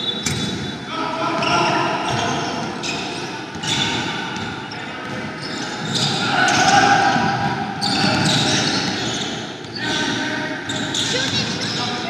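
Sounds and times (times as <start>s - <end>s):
players calling: 0.0s - 12.0s
basketball bouncing: 0.1s - 0.7s, 10.7s - 11.8s
spectators chatter: 0.8s - 12.0s.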